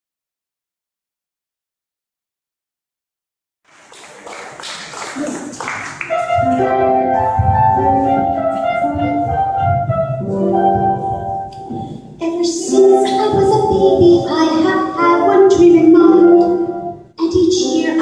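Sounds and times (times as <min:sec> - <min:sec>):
piano playing chords: 0:06.0 - 0:18.0.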